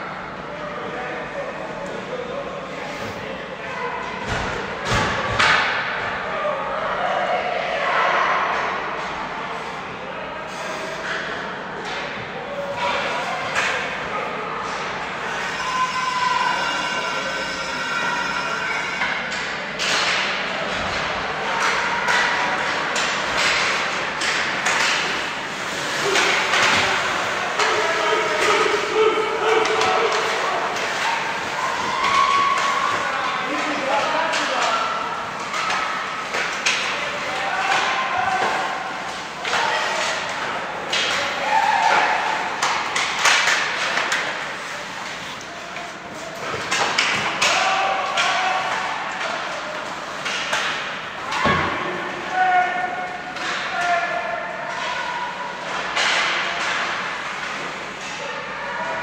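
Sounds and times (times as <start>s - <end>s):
spectators' voices: 0.0s - 59.0s
hockey sticks and puck knocking: 19.4s - 52.0s.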